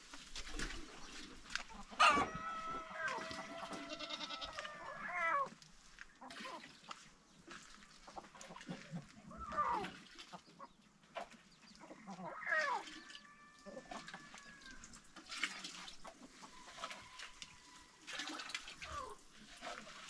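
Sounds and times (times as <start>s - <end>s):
goat bleating: 2.4s - 5.5s.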